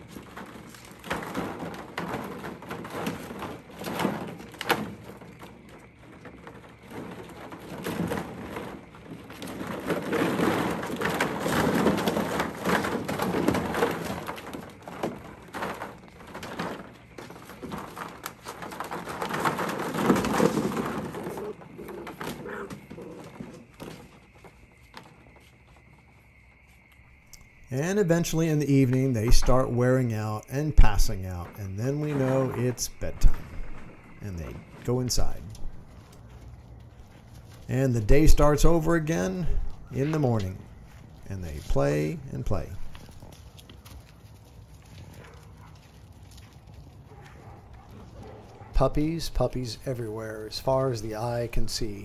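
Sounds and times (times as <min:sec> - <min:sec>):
plastic balls clattering: 0:00.0 - 0:26.2, 0:27.0 - 0:52.0
puppies scrambling: 0:00.0 - 0:26.2, 0:42.8 - 0:48.8
crickets chirring: 0:00.0 - 0:52.0.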